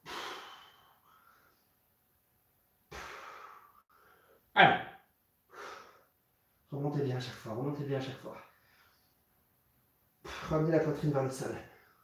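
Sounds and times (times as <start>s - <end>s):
man breathing hard: 0.0s - 1.6s, 2.9s - 4.5s, 5.5s - 6.2s.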